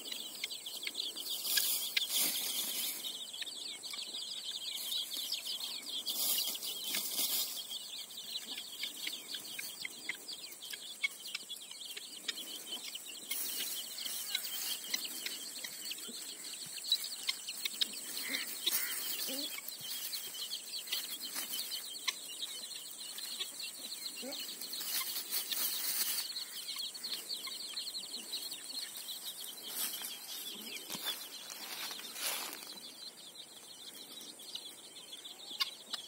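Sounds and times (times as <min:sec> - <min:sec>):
hen clucking: 0:00.0 - 0:33.0, 0:33.6 - 0:36.0
chicks peeping: 0:00.0 - 0:36.0.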